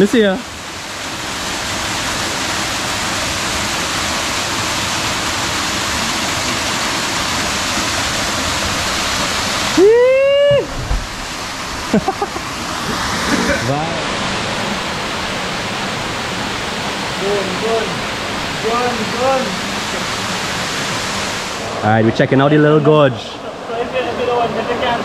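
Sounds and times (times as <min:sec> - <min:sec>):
waterfall rushing: 0:00.0 - 0:22.0
person shouting: 0:09.8 - 0:10.7.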